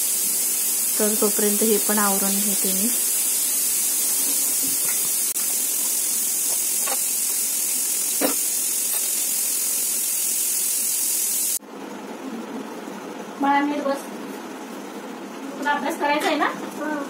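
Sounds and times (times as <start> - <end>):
tap water running onto dishes: 0.0 - 11.5.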